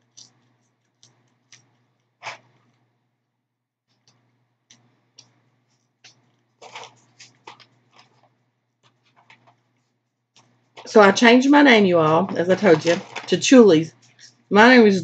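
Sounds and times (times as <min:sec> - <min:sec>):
person chewing fries: 0:00.0 - 0:02.4.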